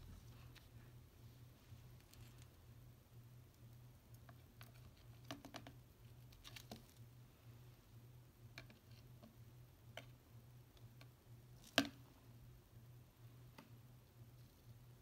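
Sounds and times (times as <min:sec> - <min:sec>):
faint low hum: 0:00.0 - 0:15.0.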